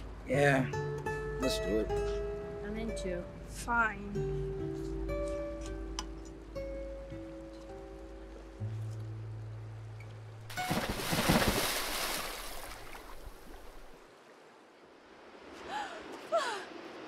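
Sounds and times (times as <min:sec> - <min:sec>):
churning water: 0:10.4 - 0:14.1
people splashing into river: 0:10.5 - 0:14.0.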